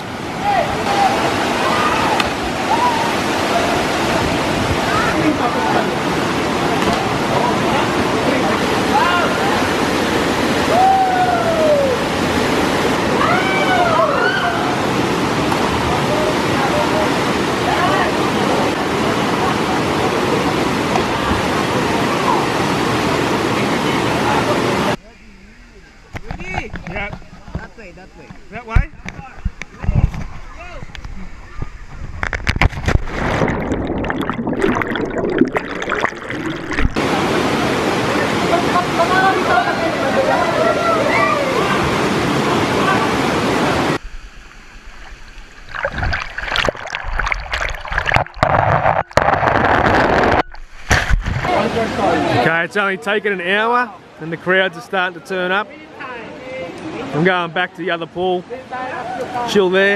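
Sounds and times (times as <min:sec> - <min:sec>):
waterfall rushing: 0:00.0 - 0:25.0, 0:33.1 - 0:50.8
waterfall pouring into pool: 0:32.8 - 0:42.0, 0:42.8 - 0:52.2.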